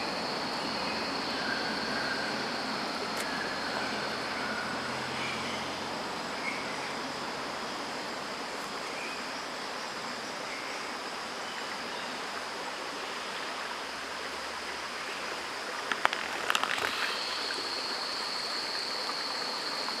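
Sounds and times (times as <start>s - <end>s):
high insect drone: 0.0s - 20.0s
steady rushing hiss: 0.0s - 20.0s
cluster of clicks: 15.8s - 17.1s.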